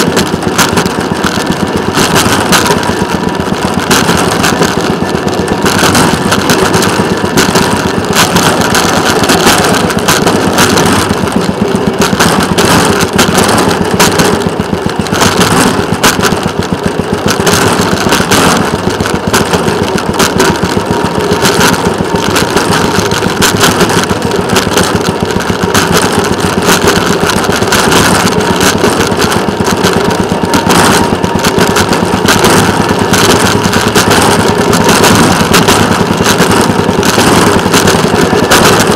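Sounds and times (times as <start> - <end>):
rail motorcar engine running: 0.0 - 38.9.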